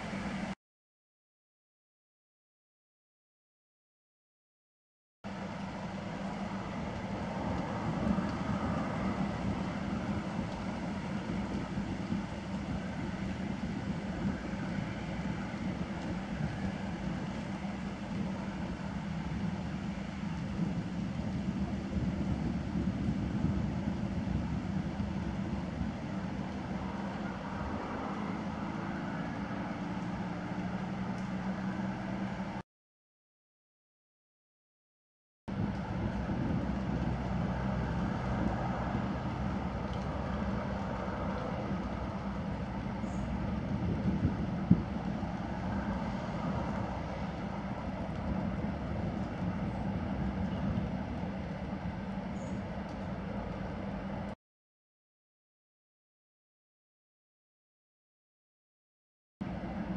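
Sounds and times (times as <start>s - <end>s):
distant road traffic rumble: 0.0s - 0.6s, 5.3s - 32.6s, 35.5s - 54.4s, 59.4s - 59.9s.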